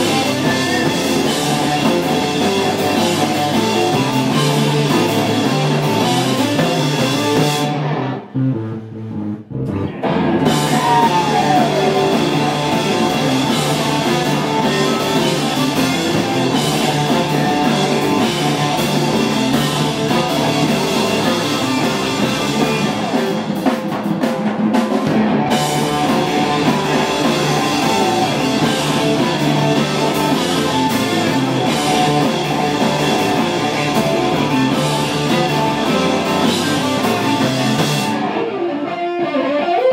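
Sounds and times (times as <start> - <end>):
live rock band playing: 0.0 - 39.9.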